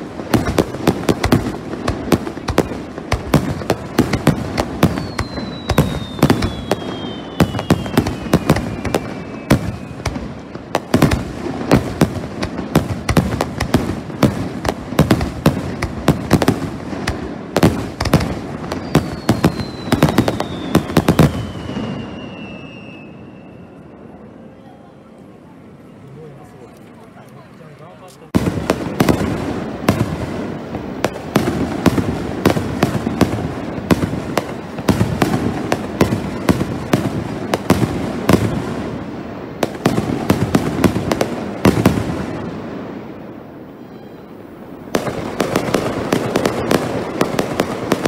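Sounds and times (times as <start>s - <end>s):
fireworks bangs: 0.0s - 23.7s, 28.2s - 48.0s
falling whistle: 4.9s - 10.1s, 18.7s - 25.1s, 43.6s - 44.6s.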